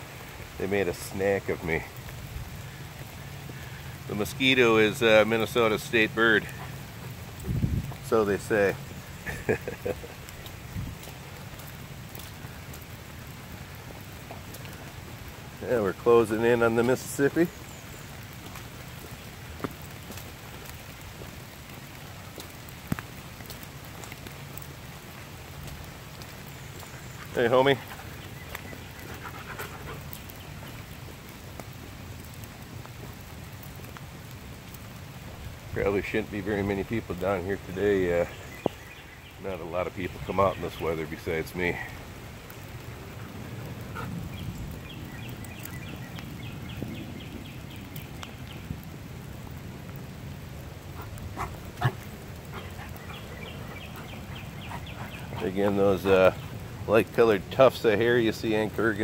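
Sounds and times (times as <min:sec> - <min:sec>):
hard rain on foliage: 0:00.0 - 0:59.0
songbird singing falling notes: 0:37.6 - 0:41.3, 0:44.3 - 0:48.7, 0:52.6 - 0:57.2.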